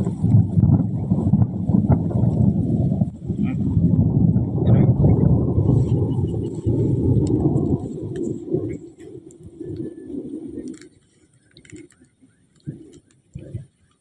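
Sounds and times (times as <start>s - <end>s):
low rumbling: 0.0s - 10.8s.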